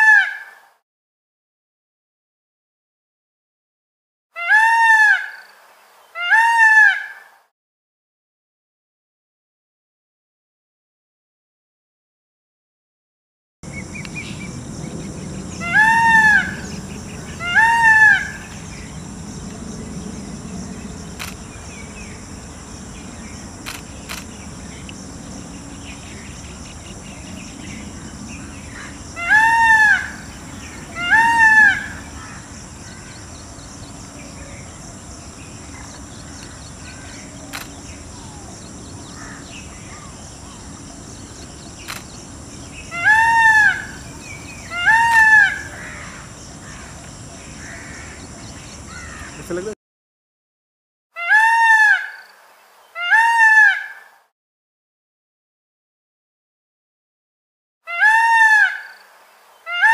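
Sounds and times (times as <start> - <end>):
peafowl calling: 0.0 - 0.6, 4.4 - 5.4, 6.1 - 7.4, 13.7 - 19.0, 21.2 - 49.7, 51.2 - 52.2, 52.9 - 54.1, 57.9 - 58.9, 59.6 - 59.9
steady background hiss: 13.7 - 49.8.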